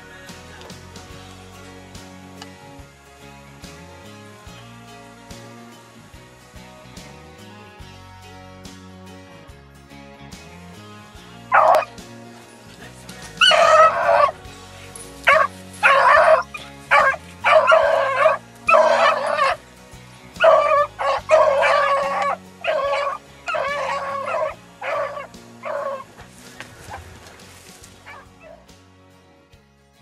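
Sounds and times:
background music: 0:00.0 - 0:30.0
dogs baying: 0:11.5 - 0:12.0, 0:13.2 - 0:19.6, 0:20.4 - 0:27.2, 0:28.0 - 0:28.7.

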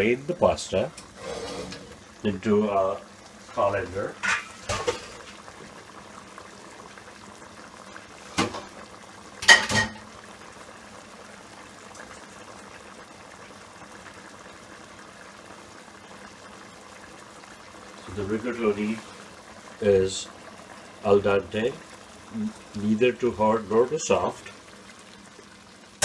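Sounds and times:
sauce simmering and bubbling: 0:00.0 - 0:26.0
cookware clattering: 0:04.2 - 0:05.2, 0:09.4 - 0:10.1.

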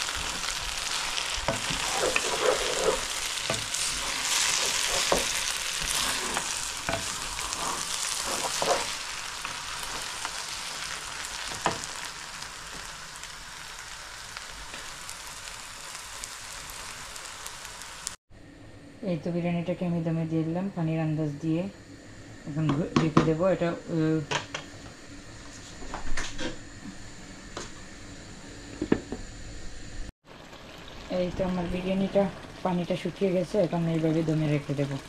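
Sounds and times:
wooden spoon stirring and scraping: 0:00.0 - 0:10.9
food sizzling in a wok: 0:00.0 - 0:18.2, 0:21.3 - 0:35.0.

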